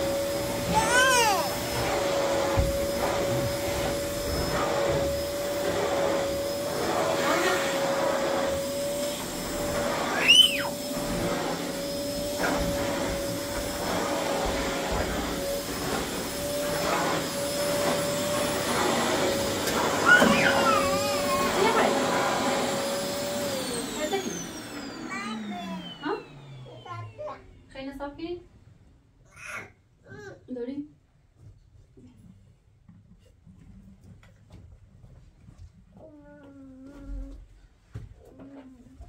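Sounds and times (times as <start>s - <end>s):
vacuum nozzle on thick rug: 0.0s - 27.4s
vacuum cleaner motor whine: 0.0s - 27.8s
high squeal: 10.1s - 10.8s.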